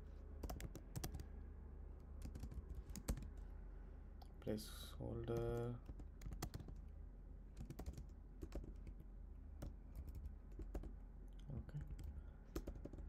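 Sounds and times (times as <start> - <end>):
low steady hum: 0.0 - 13.0
keyboard typing: 0.4 - 1.2, 2.2 - 3.3, 5.3 - 6.8, 7.6 - 9.0, 9.6 - 10.9, 11.8 - 13.0.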